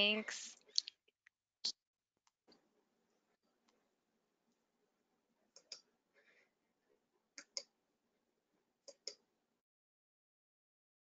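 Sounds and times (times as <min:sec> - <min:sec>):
computer mouse clicks: 0:05.6 - 0:05.8, 0:07.4 - 0:07.7, 0:08.9 - 0:09.2.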